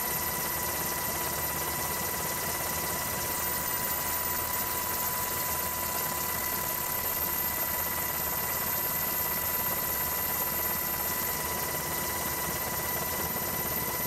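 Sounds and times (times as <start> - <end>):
helicopter engine and rotor: 0.0 - 14.0.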